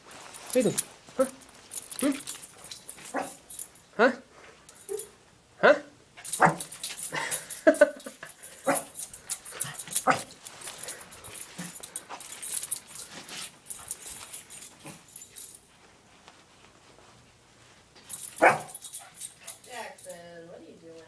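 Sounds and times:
scuffling and rustling: 0.0s - 3.8s, 6.4s - 20.2s
small dog barking: 3.1s - 3.4s, 6.4s - 6.7s, 8.6s - 8.9s, 10.0s - 10.3s, 18.4s - 18.8s.

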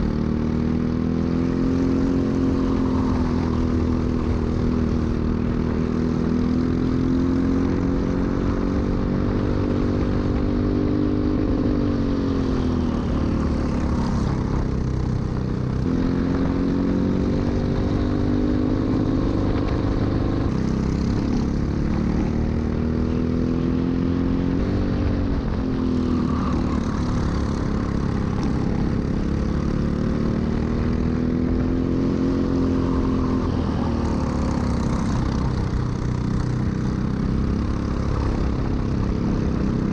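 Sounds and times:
kart engine revving: 31.5s - 39.9s.

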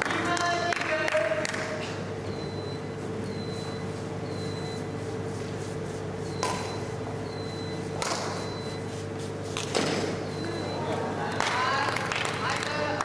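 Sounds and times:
sports hall hum: 0.0s - 13.0s
racket striking shuttlecock: 8.0s - 8.4s.

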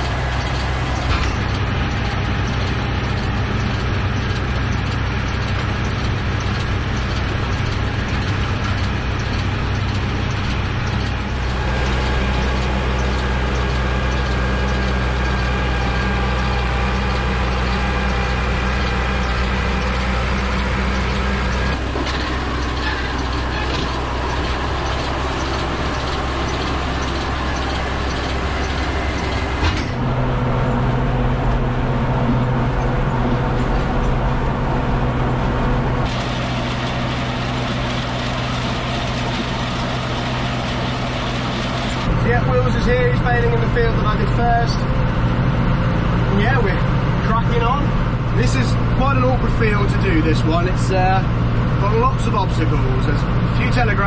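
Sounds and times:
baler machinery working: 0.0s - 54.0s
tractor diesel engine running: 0.0s - 54.0s.

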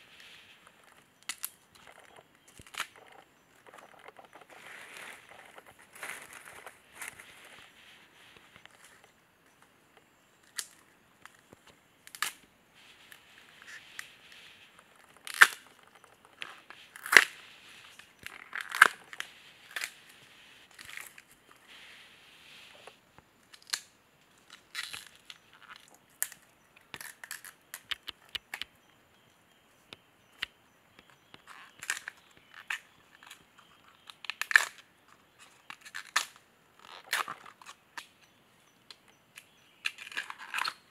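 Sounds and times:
bamboo sheaths tearing and snapping: 1.2s - 7.6s, 10.5s - 12.4s, 15.0s - 17.4s, 18.0s - 20.1s, 22.8s - 28.7s, 31.2s - 38.1s, 38.9s - 40.9s.

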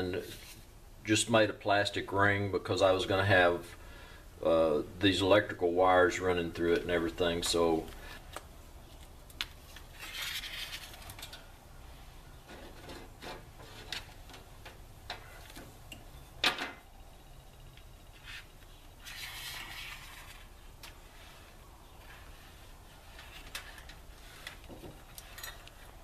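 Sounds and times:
wire handling clicks and rustles: 6.7s - 11.7s, 12.4s - 16.9s, 17.5s - 26.0s.

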